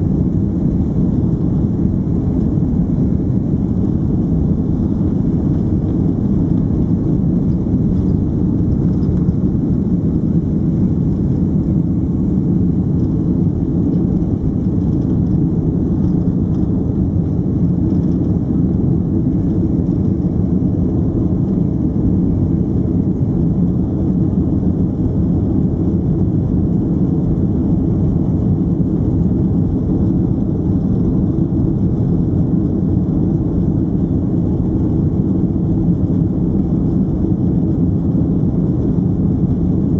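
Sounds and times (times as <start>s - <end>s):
jet engine roar inside cabin: 0.0s - 39.9s.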